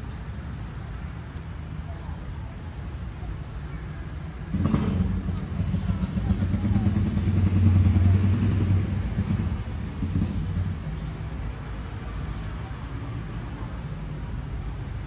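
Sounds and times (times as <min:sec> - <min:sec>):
vehicle engine passing: 0:04.5 - 0:12.9.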